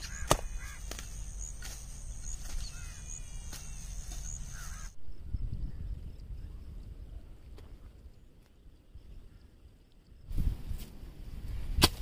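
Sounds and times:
hoe chopping into damp soil: 0.0 - 4.3, 11.7 - 12.0.

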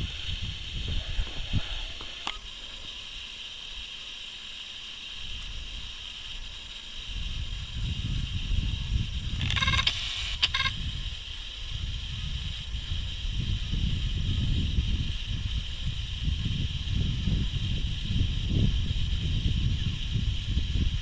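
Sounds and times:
wind buffeting microphone: 0.0 - 2.2, 7.0 - 21.0
steady high hiss: 0.0 - 21.0.

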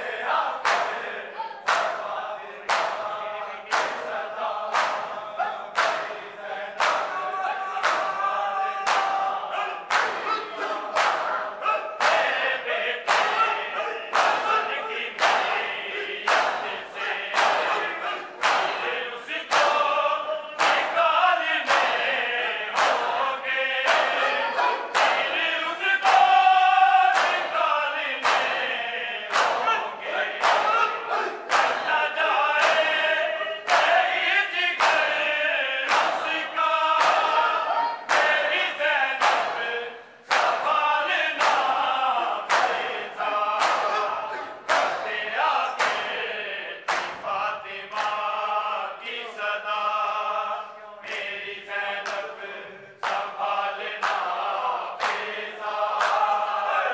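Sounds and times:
men reciting in chorus: 0.0 - 56.9
chest-beating slaps: 0.6 - 1.1, 1.7 - 21.0, 21.6 - 22.1, 22.8 - 23.2, 23.8 - 28.6, 29.3 - 33.0, 33.7 - 37.4, 38.0 - 39.7, 40.3 - 40.8, 41.4 - 41.9, 42.5 - 46.2, 46.9 - 48.3, 53.0 - 56.4.

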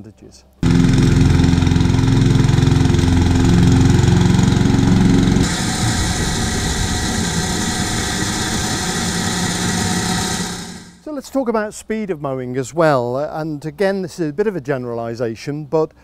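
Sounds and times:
reel mower running: 0.6 - 11.0
rotary lawn mower engine drone: 0.6 - 11.0.

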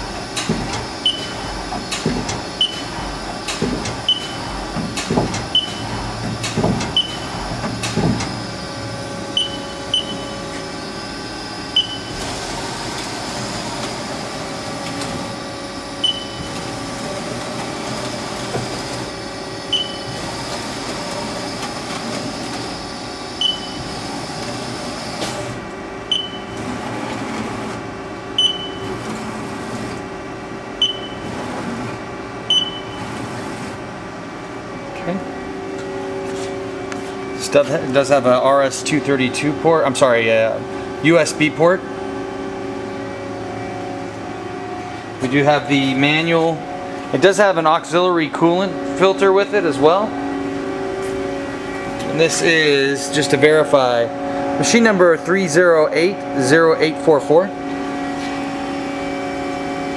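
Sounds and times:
machine hum: 0.0 - 59.9
tool turret clunking: 0.3 - 8.5.

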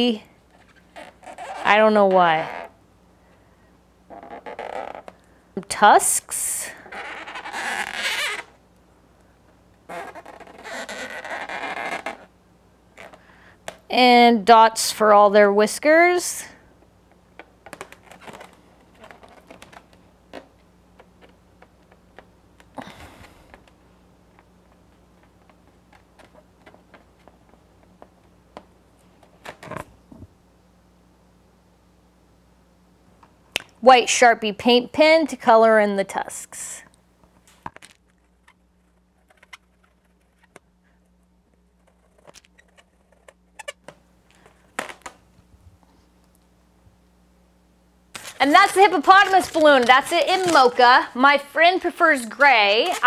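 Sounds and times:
balloon handling: 0.5 - 1.8, 4.1 - 5.2, 6.8 - 8.6, 9.8 - 12.3, 12.9 - 13.9, 17.4 - 23.8, 41.7 - 45.2, 48.2 - 51.1.

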